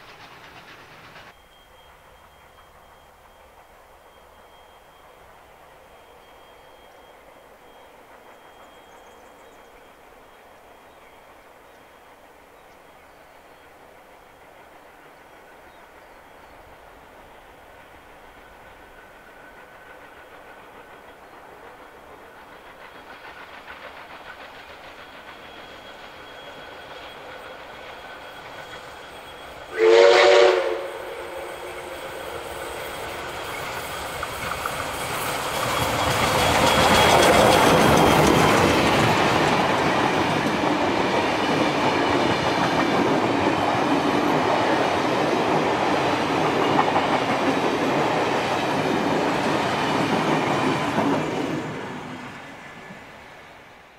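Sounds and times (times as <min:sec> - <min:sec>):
steam locomotive rumble: 0:00.0 - 0:53.9
wheels clattering on rails: 0:31.8 - 0:51.8.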